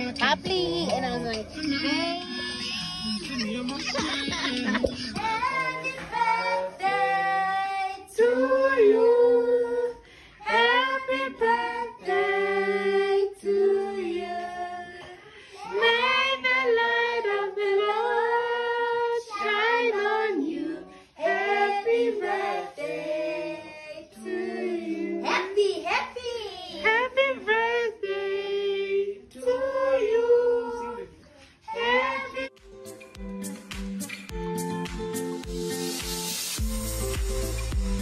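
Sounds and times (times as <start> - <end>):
children and women singing: 1.4 - 25.7, 26.7 - 32.6.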